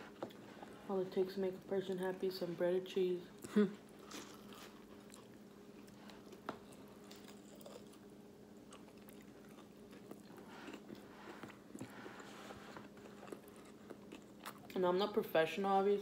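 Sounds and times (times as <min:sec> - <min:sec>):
chewing fried food: 0:03.4 - 0:14.8.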